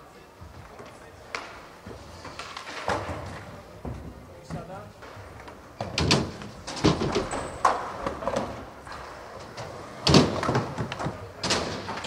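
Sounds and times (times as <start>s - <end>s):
skateboards knocking on wooden ramps: 10.0s - 12.0s.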